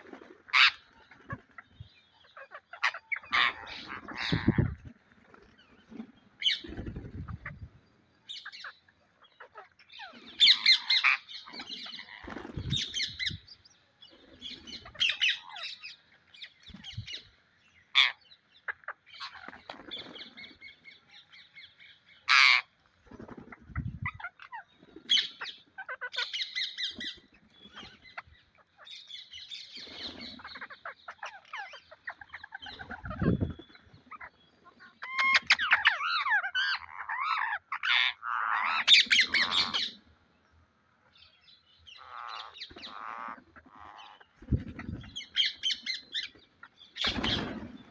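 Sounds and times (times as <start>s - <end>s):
parakeets squawking: 0.4s - 1.6s, 2.2s - 4.8s, 8.3s - 13.4s, 14.4s - 16.0s, 18.0s - 20.0s, 22.3s - 22.7s, 23.7s - 29.0s, 30.0s - 40.0s, 41.9s - 47.8s.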